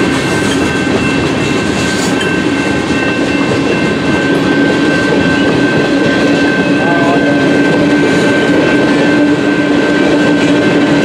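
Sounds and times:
train wheels rumbling and rattling: 0.0s - 11.0s
steady high-pitched tone: 0.1s - 11.0s.

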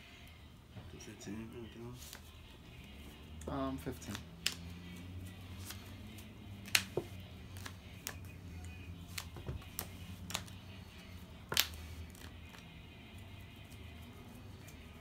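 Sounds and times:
trading cards clicking and tapping: 3.3s - 4.7s, 5.6s - 8.3s, 9.0s - 10.6s, 11.4s - 12.7s
card snaps: 3.4s - 4.7s, 6.6s - 8.2s, 9.1s - 10.6s, 11.5s - 12.6s.

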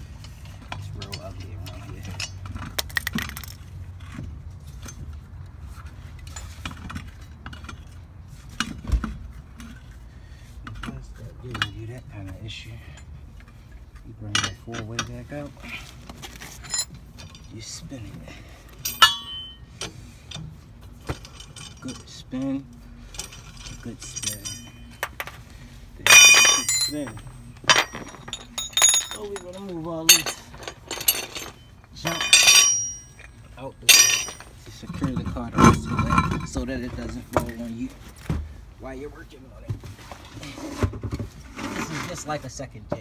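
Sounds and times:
lug wrench rattling and clicking: 0.0s - 5.3s, 14.3s - 15.4s, 26.0s - 36.6s
lug nuts clinking on studs: 10.6s - 15.5s, 18.7s - 25.4s, 26.0s - 37.6s.

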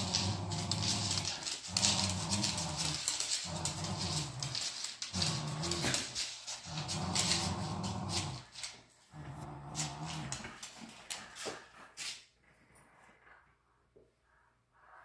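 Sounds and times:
dog growling in play: 0.0s - 11.4s
scratchy rustling: 0.0s - 12.2s.

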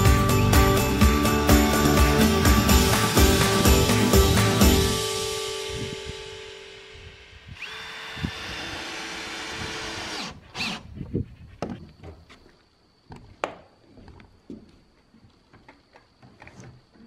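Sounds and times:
cordless drill driving screw: 7.6s - 10.9s.

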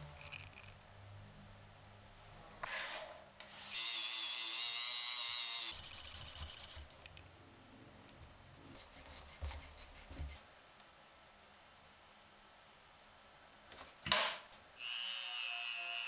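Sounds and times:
pad rubbing a metal rod: 5.7s - 6.9s.

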